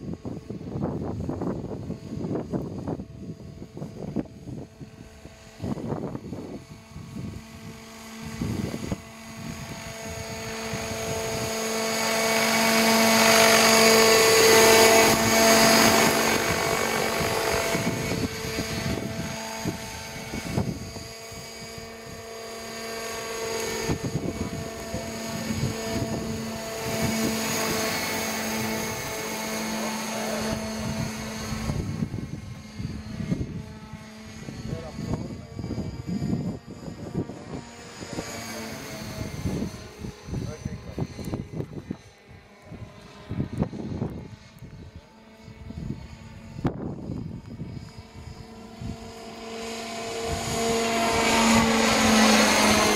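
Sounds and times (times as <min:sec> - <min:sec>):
model helicopter rotor whine: 0:00.0 - 0:52.9.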